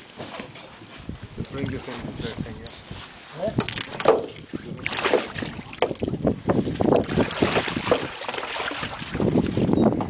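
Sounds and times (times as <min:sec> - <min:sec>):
wind buffeting microphone: 0:01.0 - 0:10.0
water splashing against boat: 0:03.5 - 0:09.8.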